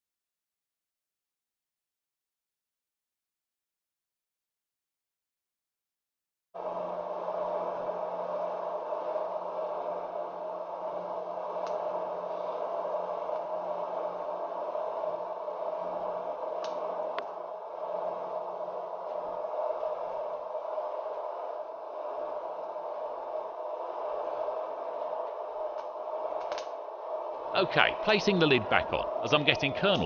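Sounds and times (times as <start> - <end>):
electric fan whirring: 6.6 - 30.0.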